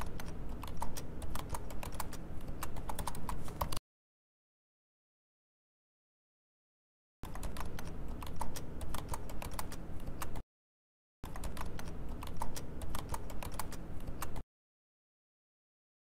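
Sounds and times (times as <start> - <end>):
keyboard typing: 0.0 - 3.8, 7.2 - 10.4, 11.2 - 14.4.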